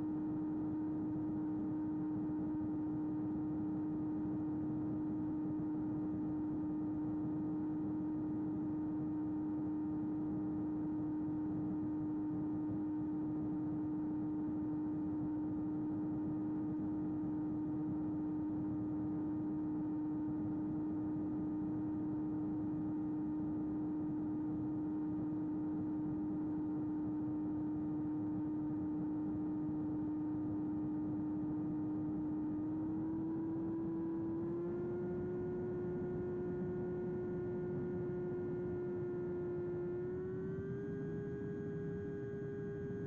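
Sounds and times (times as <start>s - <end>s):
electric motor and propeller whine: 31.2s - 43.0s.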